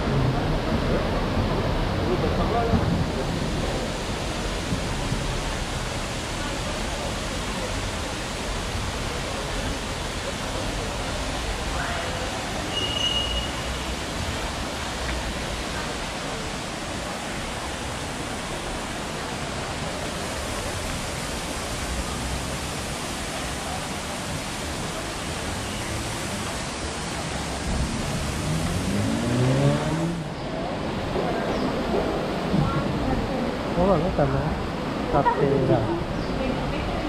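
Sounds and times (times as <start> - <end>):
steady rushing noise: 0.0 - 12.7, 13.8 - 37.0
car engine revving: 27.6 - 30.4.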